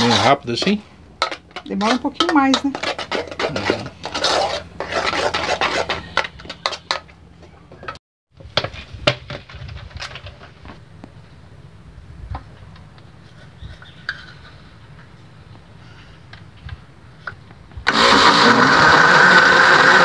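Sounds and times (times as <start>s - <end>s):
spoon scraping a saucepan: 0.0s - 7.1s.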